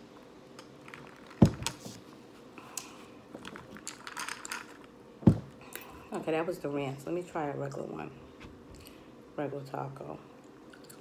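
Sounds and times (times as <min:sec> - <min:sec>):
eating and drinking sounds: 0:10.3 - 0:11.0.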